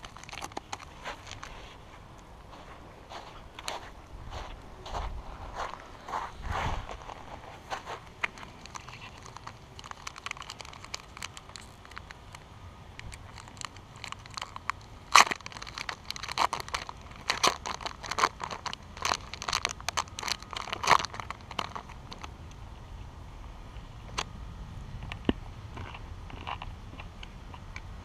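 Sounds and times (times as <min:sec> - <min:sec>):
wrapper crinkling and tearing: 0:00.0 - 0:01.7, 0:06.9 - 0:12.4, 0:13.0 - 0:22.3.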